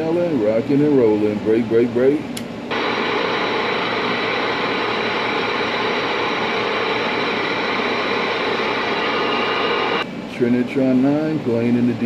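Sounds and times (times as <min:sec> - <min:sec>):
radio static hiss: 0:02.7 - 0:10.1.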